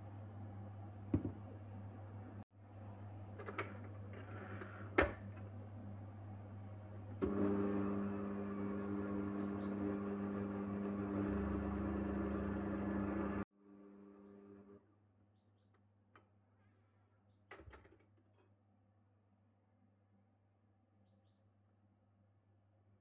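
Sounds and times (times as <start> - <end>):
stand mixer motor running: 7.2 - 13.5.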